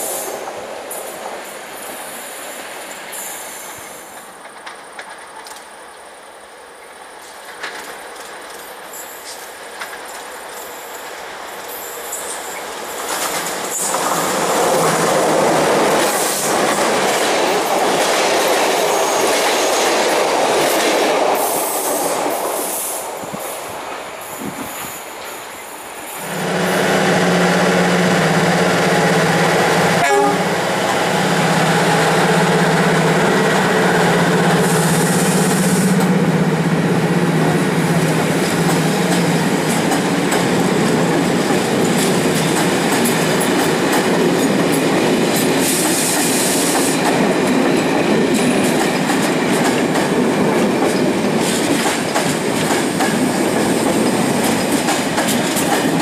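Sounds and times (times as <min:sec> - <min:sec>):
high hissing squeals: 0:01.0 - 0:04.2
train wheels clattering over rails: 0:07.2 - 0:30.0, 0:31.9 - 0:56.0.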